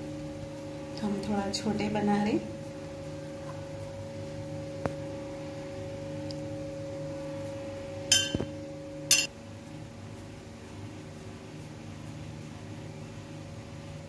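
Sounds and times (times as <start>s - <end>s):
steady hum: 0.0s - 14.0s
sharp metallic clinks: 8.1s - 8.5s.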